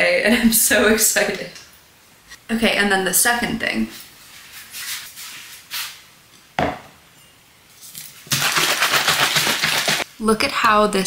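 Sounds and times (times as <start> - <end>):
bottle of liquid shaken: 8.2 - 10.0.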